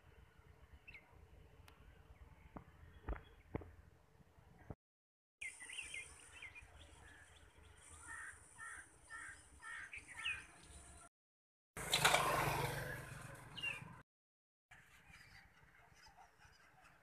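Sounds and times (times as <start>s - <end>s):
birds chirping: 5.4s - 11.1s, 12.9s - 14.0s.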